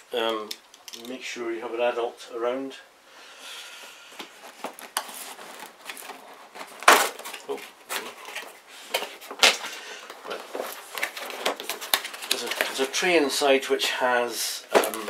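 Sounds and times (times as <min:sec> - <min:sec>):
cardboard rustling and scraping: 0:04.2 - 0:13.2, 0:14.7 - 0:15.0.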